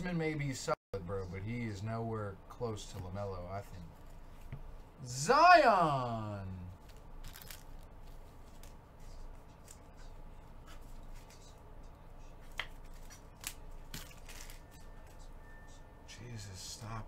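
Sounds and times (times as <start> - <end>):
trading cards rustling and clicking: 6.8 - 10.2, 12.4 - 15.2.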